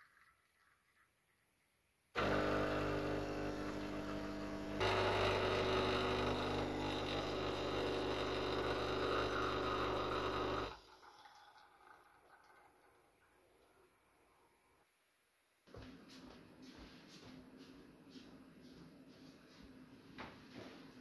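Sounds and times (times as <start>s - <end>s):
espresso machine pump running: 2.2s - 11.4s.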